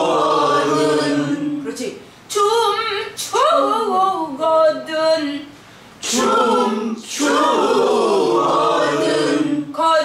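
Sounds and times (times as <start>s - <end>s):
group singing together: 0.0s - 1.9s, 6.0s - 10.0s
woman singing: 1.6s - 5.5s.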